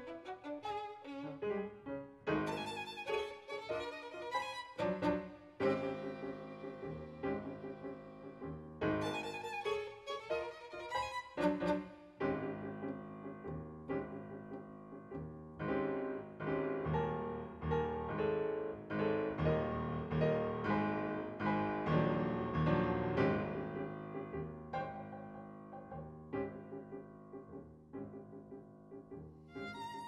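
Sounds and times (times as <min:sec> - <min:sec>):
piano piece: 0:00.0 - 0:30.0.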